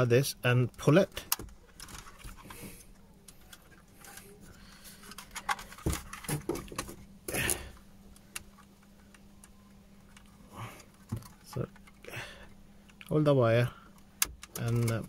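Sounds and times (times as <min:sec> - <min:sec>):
plastic clicks and rustles: 0:01.2 - 0:12.0, 0:13.9 - 0:15.0.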